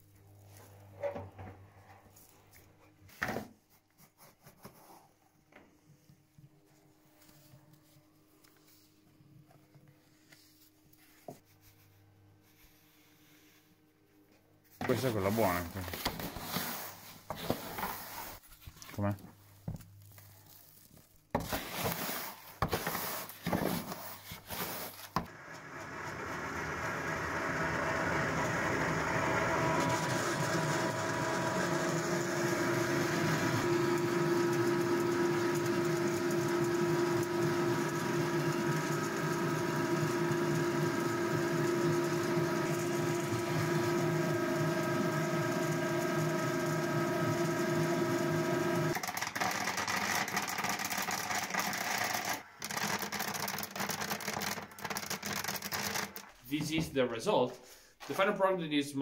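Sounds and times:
pellet mill humming: 14.8s - 18.1s, 18.9s - 56.4s.

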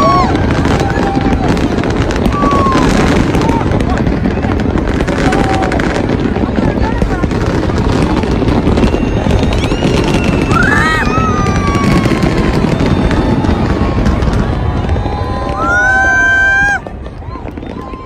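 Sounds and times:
fireworks booming and crackling: 0.0s - 18.0s
fireworks whistling: 0.0s - 18.0s.

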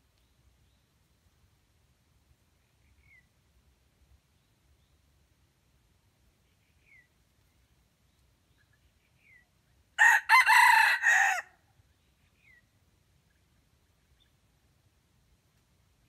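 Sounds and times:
rooster crowing: 10.0s - 11.6s.

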